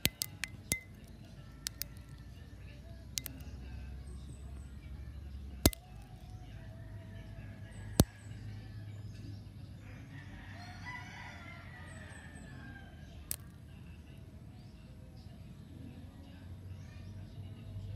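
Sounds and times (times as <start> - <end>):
seed pods cracking open: 0.0 - 2.4, 3.2 - 3.4, 5.6 - 6.3, 13.3 - 13.6
rooster crowing: 9.9 - 13.0.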